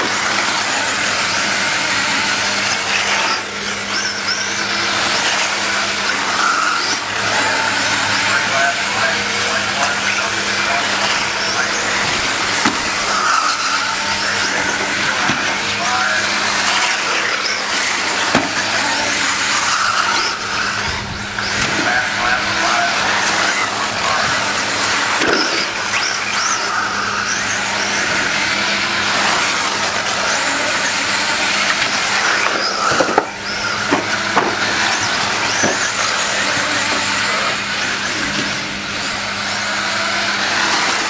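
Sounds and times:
rc car motors whining: 0.0s - 41.0s.

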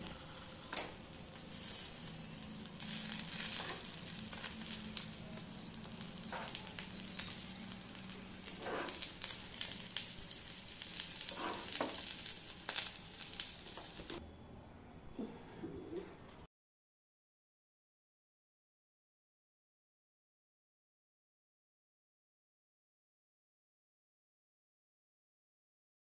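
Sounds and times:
food sizzling in frying pan: 0.0s - 14.2s
steady low hum: 0.0s - 16.3s
metal spatula scraping pan: 8.5s - 9.3s, 11.2s - 12.1s.

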